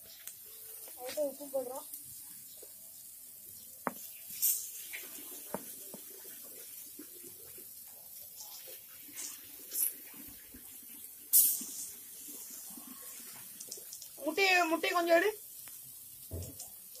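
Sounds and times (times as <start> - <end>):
vegetables sizzling: 0.0 - 17.0
knife scraping and tapping on tile: 3.9 - 4.1.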